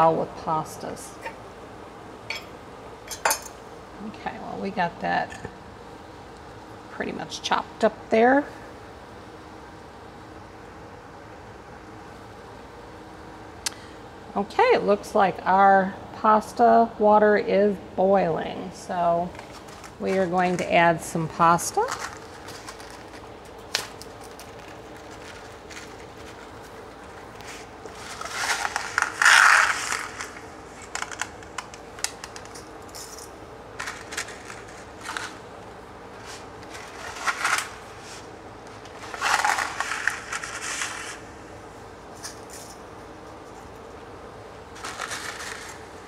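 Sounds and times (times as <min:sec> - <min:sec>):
dry spaghetti clattering: 0:21.8 - 0:35.5, 0:36.1 - 0:41.2, 0:44.7 - 0:46.0.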